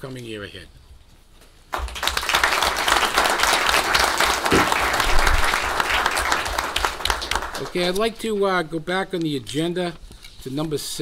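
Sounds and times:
crowd applauding: 1.7s - 8.0s.

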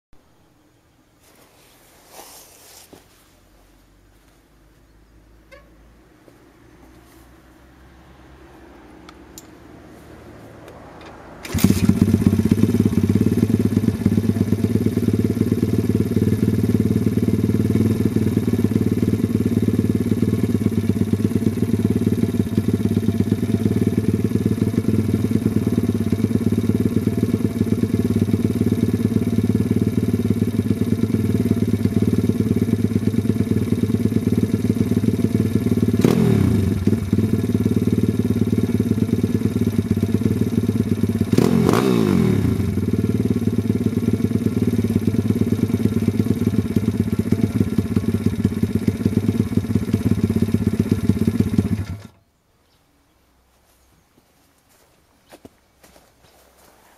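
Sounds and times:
click: 9.1s - 9.6s
motorbike engine starting and idling: 10.6s - 52.2s.

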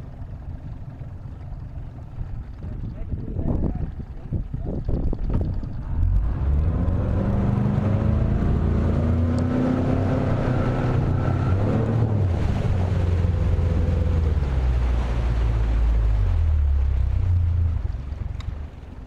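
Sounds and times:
outboard motor running: 0.0s - 19.0s
wind buffeting microphone: 2.0s - 9.6s.

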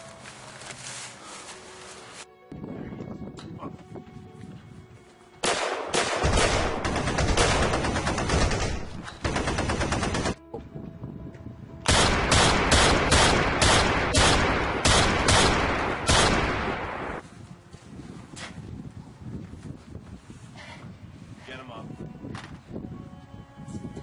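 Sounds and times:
rapid gunfire: 5.4s - 10.4s, 11.9s - 17.2s.

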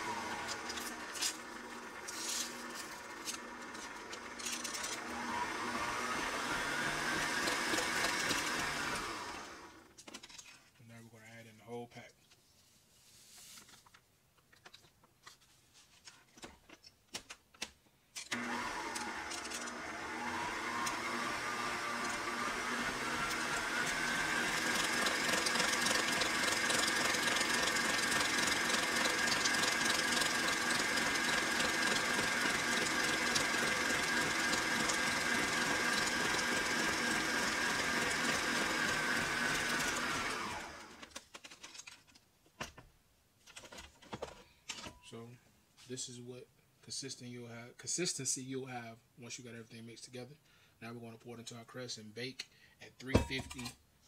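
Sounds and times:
stand mixer motor whining: 0.0s - 9.9s, 18.3s - 41.0s.

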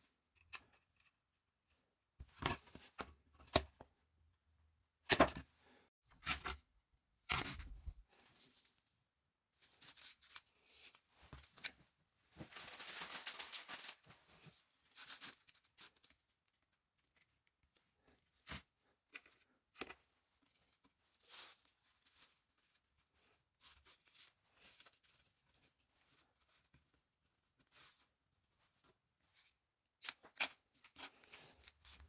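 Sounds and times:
foam strip rustling: 12.5s - 14.1s.

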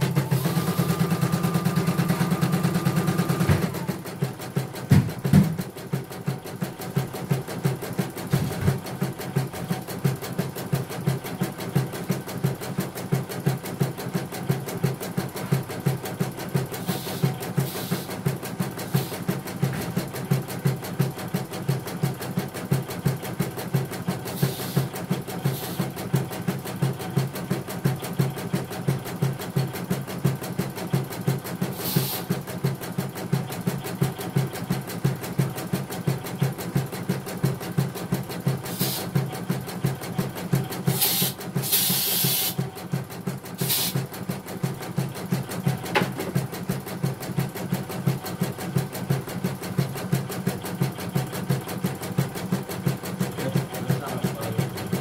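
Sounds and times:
embroidery machine stitching: 0.0s - 55.0s
brief hissing noises: 16.8s - 18.1s, 24.4s - 24.9s, 25.5s - 25.9s, 31.7s - 32.3s, 38.7s - 39.1s, 40.9s - 42.6s, 43.6s - 44.0s.

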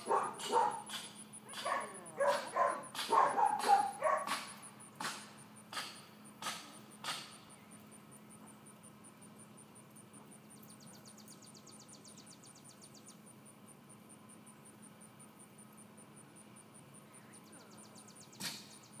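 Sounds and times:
puppy yipping: 0.0s - 0.9s, 1.5s - 4.4s.

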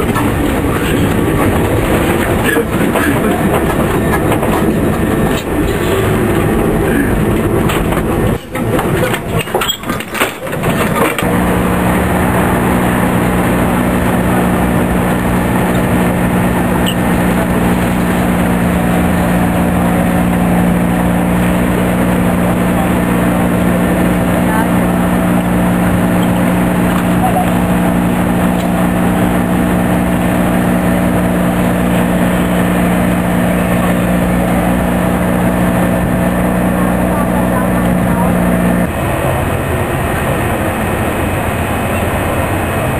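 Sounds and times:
low multi-tone hum: 0.0s - 42.9s
street noise: 0.0s - 42.9s
tram rattling on rails: 0.0s - 42.9s.

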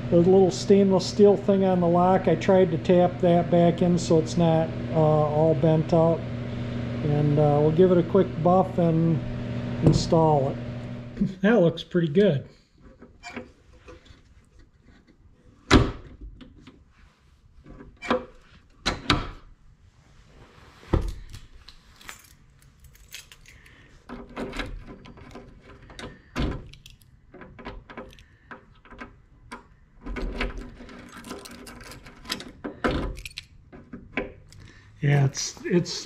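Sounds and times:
keys jangling: 22.0s - 23.7s.

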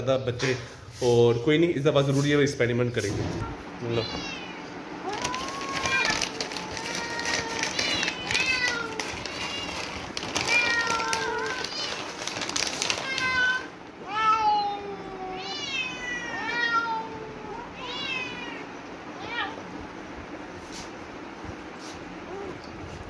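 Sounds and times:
cats meowing: 3.4s - 19.8s, 22.2s - 22.8s.

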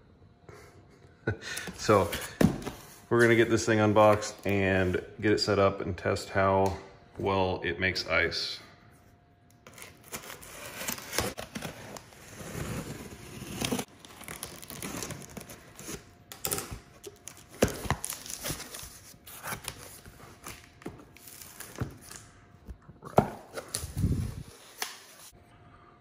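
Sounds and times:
cardboard and packaging rustling: 9.6s - 25.3s
knife slitting packing tape: 9.7s - 22.2s.

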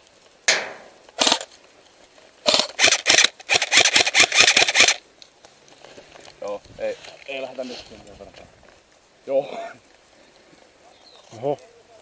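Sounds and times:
airsoft gun firing: 0.5s - 1.5s, 2.4s - 5.0s.

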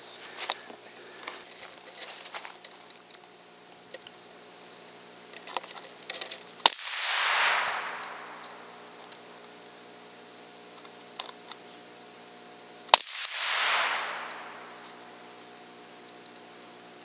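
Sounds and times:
steady high whine: 0.0s - 16.4s
rifle shots: 6.6s - 9.0s, 12.9s - 14.9s.

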